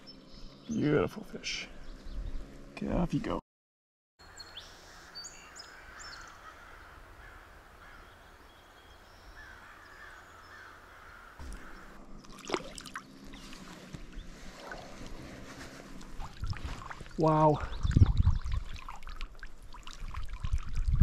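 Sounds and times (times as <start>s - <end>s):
crows cawing: 5.5s - 8.2s, 9.3s - 12.0s
water sloshing: 11.4s - 21.0s.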